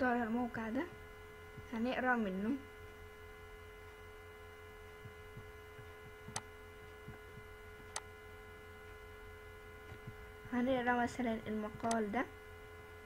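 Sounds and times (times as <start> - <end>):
faint mains hum: 0.0 - 13.0
computer mouse clicks: 5.4 - 8.1, 11.7 - 12.1.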